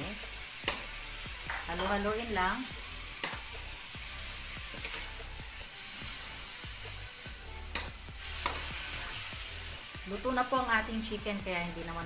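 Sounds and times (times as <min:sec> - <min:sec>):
chicken sizzling in a wok: 0:00.0 - 0:12.0
metal turner scraping a pan: 0:04.4 - 0:06.3, 0:07.7 - 0:09.4.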